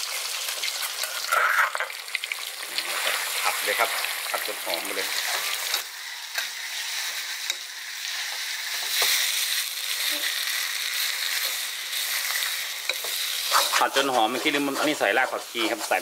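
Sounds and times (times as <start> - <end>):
paste sizzling in oil: 0.0 - 16.0
metal spatula scraping wok: 11.2 - 16.0.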